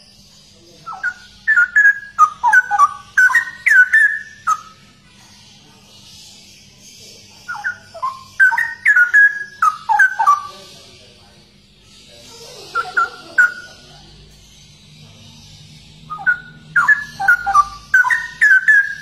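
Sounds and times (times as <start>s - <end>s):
bird singing whistled notes: 0.0s - 4.9s, 6.5s - 11.2s, 14.6s - 19.0s.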